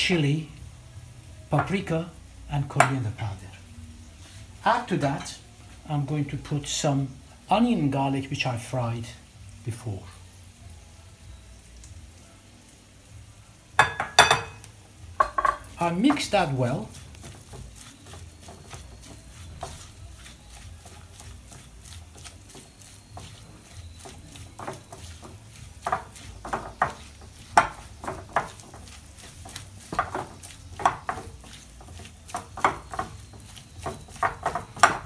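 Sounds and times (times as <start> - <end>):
spatula stirring minced meat: 1.2 - 9.0, 14.9 - 35.0
utensil tapping glass bowl: 13.8 - 16.5, 17.2 - 35.0.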